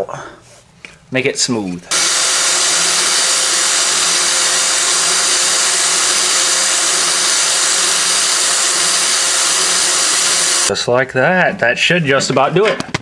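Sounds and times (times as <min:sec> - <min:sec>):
electric drill boring metal: 0:01.9 - 0:10.7.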